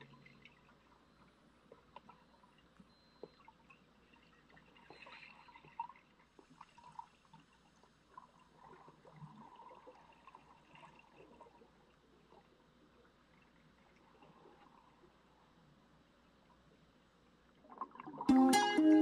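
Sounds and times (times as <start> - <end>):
small clicks and ticks: 0.0 - 15.2
faint underwater ambience: 0.0 - 19.0.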